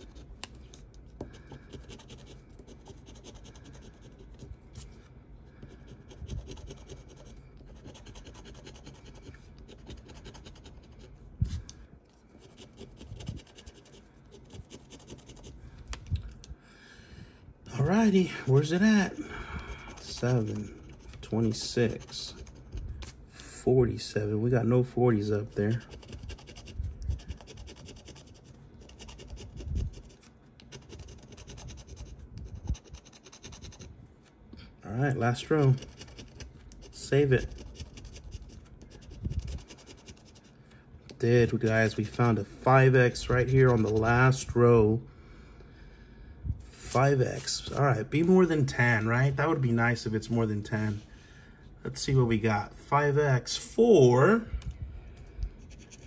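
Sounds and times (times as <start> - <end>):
scratching lottery ticket: 0.0 - 11.2, 12.3 - 15.6, 19.8 - 23.0, 25.1 - 33.9, 35.1 - 40.6, 43.1 - 44.5, 55.6 - 56.0
scraping scratch-off ticket: 19.9 - 22.8, 35.2 - 40.3, 43.1 - 44.5.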